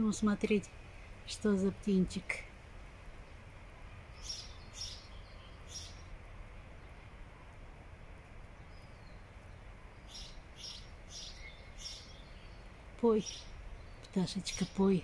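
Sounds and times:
low steady background rumble: 0:00.0 - 0:15.0
songbird singing high notes: 0:04.2 - 0:06.1, 0:10.0 - 0:15.0.

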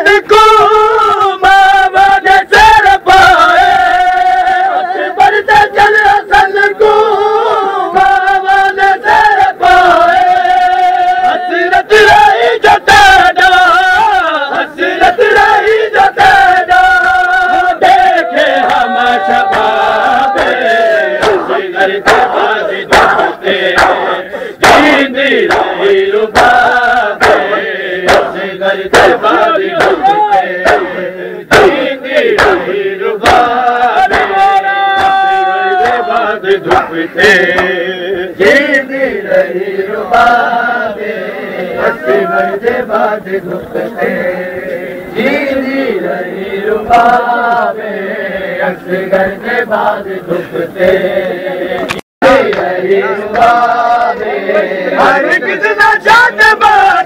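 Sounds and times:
crowd of men chanting: 0:00.0 - 0:57.0
hands slapping chests: 0:21.2 - 0:36.9, 0:51.9 - 0:52.7.

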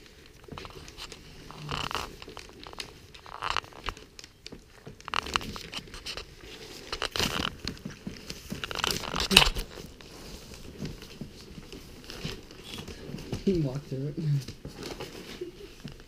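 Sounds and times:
newspaper crinkling: 0:00.0 - 0:16.0
puppies smacking and licking: 0:00.1 - 0:16.0.

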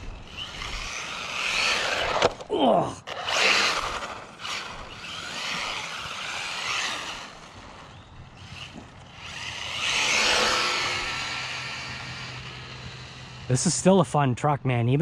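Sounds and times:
tyre noise on pavement: 0:00.0 - 0:13.2
rc truck motor whine: 0:00.0 - 0:13.8.

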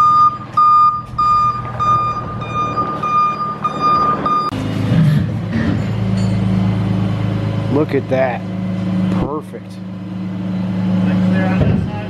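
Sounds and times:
truck warning beeper: 0:00.0 - 0:04.6
truck engine running: 0:00.0 - 0:12.0.

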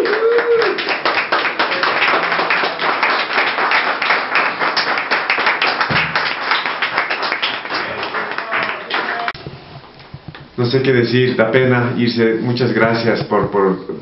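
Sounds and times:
people applauding: 0:00.0 - 0:09.4.

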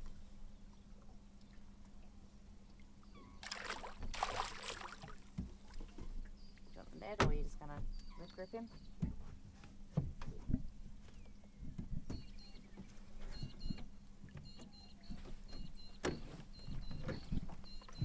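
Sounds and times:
water sloshing: 0:00.0 - 0:11.3
steady low hum: 0:00.0 - 0:18.0
knocks and thumps on boat: 0:03.5 - 0:18.0.

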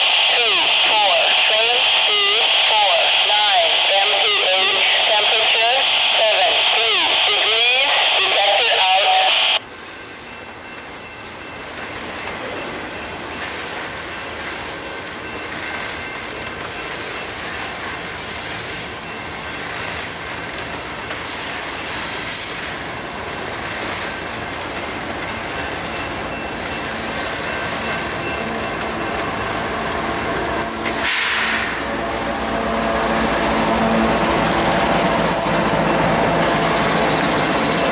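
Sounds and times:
diesel locomotive passing: 0:09.6 - 0:37.9
train wheels running on rails: 0:09.6 - 0:37.9.

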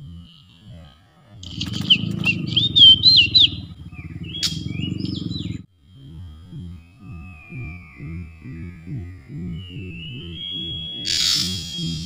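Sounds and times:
steady low rumble: 0:00.0 - 0:12.0
bird singing whistled notes: 0:01.4 - 0:05.6, 0:07.2 - 0:12.0.

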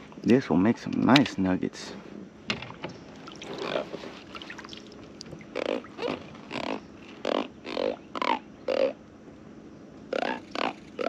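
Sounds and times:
catfish grunting: 0:03.4 - 0:09.0.

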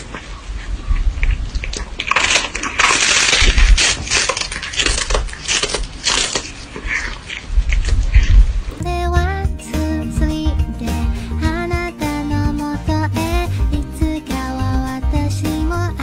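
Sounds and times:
cat crunching a hard treat: 0:01.8 - 0:08.4.

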